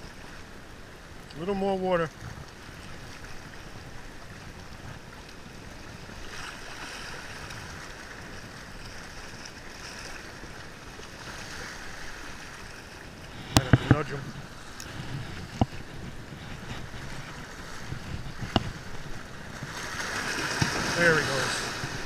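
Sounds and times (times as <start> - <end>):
small waves washing over rocks: 0.0 - 22.0.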